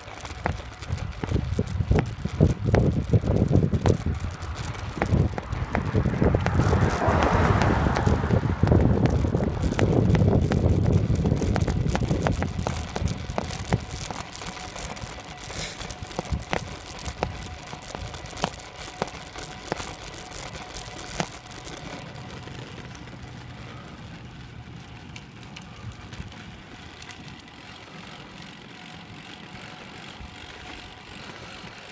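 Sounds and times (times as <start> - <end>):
bicycle rolling on gravel: 0.0 - 31.9
bicycle tyres rattling on gravel: 0.0 - 31.9
wind on microphone: 0.4 - 14.0.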